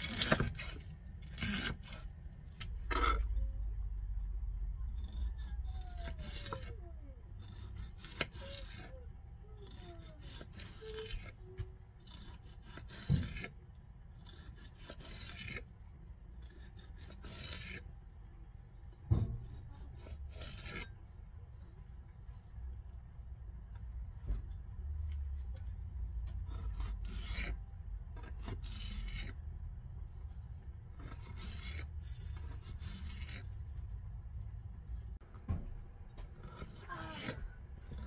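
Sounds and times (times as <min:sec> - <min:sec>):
knife sawing through tomatoes: 0:04.8 - 0:11.4, 0:12.0 - 0:15.7, 0:16.3 - 0:17.9, 0:19.4 - 0:21.0, 0:26.2 - 0:29.4, 0:30.9 - 0:33.6, 0:36.3 - 0:38.0.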